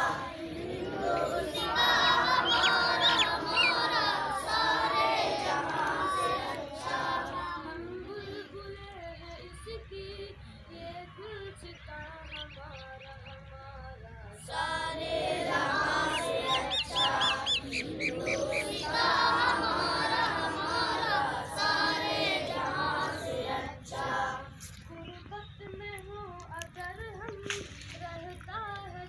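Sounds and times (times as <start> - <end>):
children singing in unison: 0.0 - 11.0, 14.4 - 24.8.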